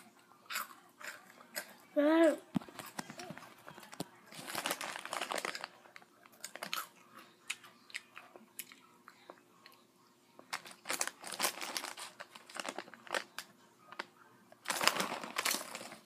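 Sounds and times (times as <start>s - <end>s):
chewing crunchy snacks: 0.0s - 1.8s, 2.6s - 9.8s, 10.4s - 16.0s
snack bag crinkling: 2.6s - 6.9s, 10.4s - 16.0s.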